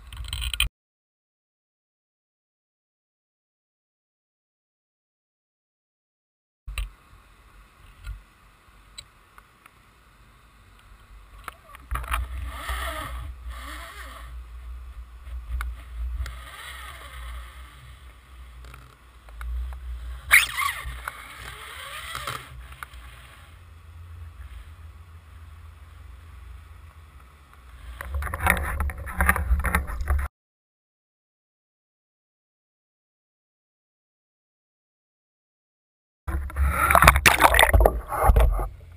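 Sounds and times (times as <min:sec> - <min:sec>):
muffled underwater rumble: 0:36.3 - 0:38.9.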